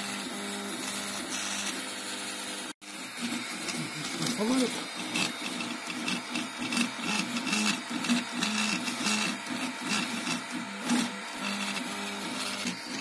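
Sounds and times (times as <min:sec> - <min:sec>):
stepper motors whining: 0:00.0 - 0:13.0.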